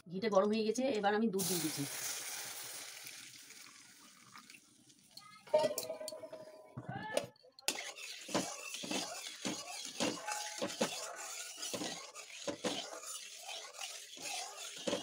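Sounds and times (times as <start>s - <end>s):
hot pan hissing: 1.4s - 4.0s
spatula scraping metal pan: 7.7s - 15.0s.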